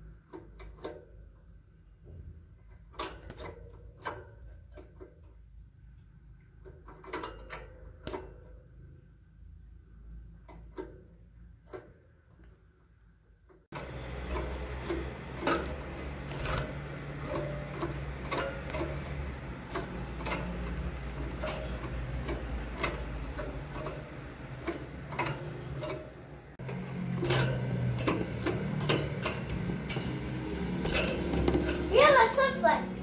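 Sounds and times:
bird hopping on perch and cage: 13.8 - 32.6.

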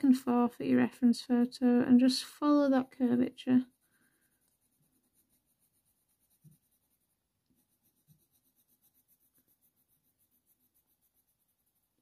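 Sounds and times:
pencil scratching on paper: 2.4 - 12.0.

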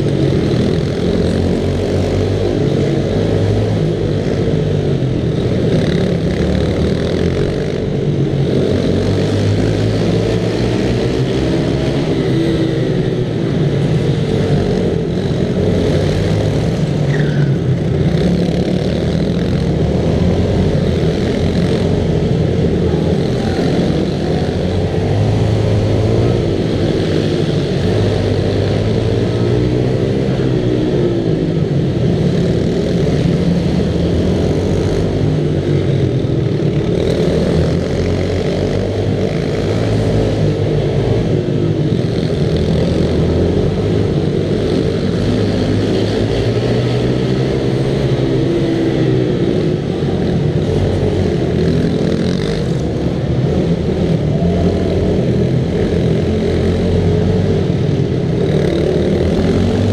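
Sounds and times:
minibike engine revving: 0.0 - 59.9
other minibikes: 0.0 - 59.9.

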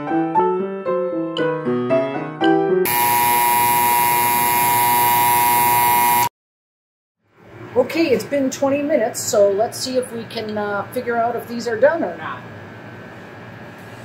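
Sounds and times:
piano music: 0.0 - 2.9
timer alarm buzzer: 2.8 - 6.3.

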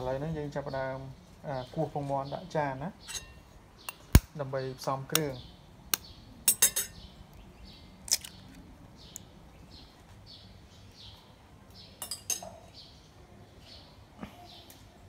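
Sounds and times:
bird chirping: 0.0 - 15.0
spoon clinking against china bowl: 6.5 - 7.0.

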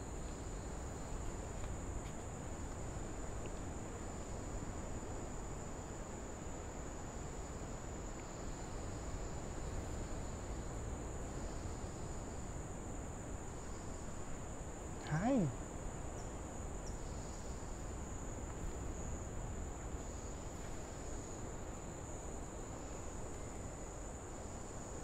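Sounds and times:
insects trilling: 0.0 - 25.0.

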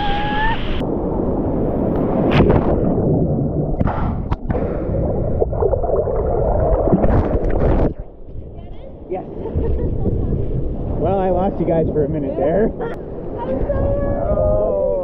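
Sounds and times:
muffled underwater surf rumble: 0.6 - 15.0
bubbly pops: 2.4 - 8.1.

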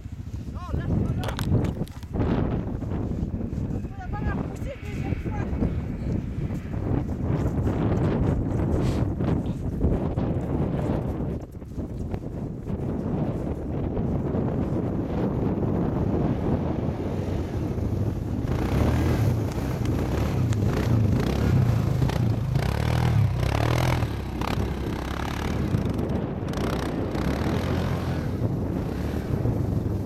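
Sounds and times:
quad bike engine running: 16.2 - 30.0.

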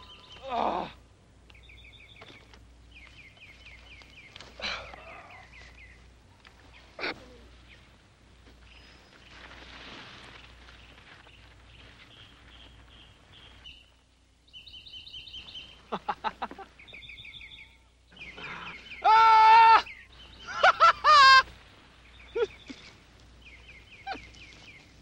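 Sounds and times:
birds chirping: 0.0 - 9.7, 10.3 - 25.0
laughter: 15.9 - 16.8, 20.4 - 21.5
man yelling: 19.0 - 19.9.

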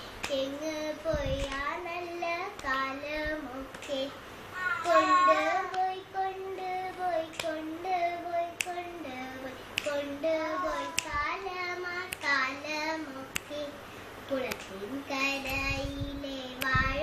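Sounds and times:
person singing unaccompanied: 0.2 - 17.0
hand clap keeping time: 7.2 - 7.8, 8.5 - 9.0, 9.8 - 13.7, 14.4 - 14.8.

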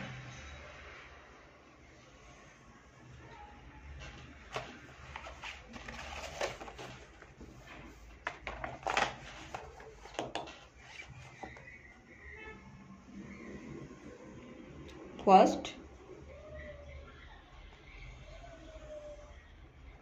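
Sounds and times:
paper moving: 4.0 - 11.8
pen clicks and knocks: 8.3 - 10.6.

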